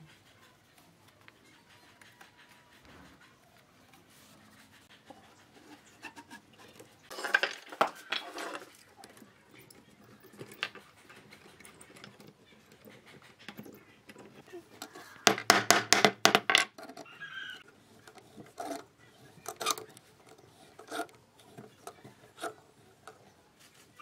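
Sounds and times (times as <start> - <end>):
wooden strips clattering: 7.1 - 8.8, 15.2 - 17.1
glue scraping on wood: 16.8 - 24.0.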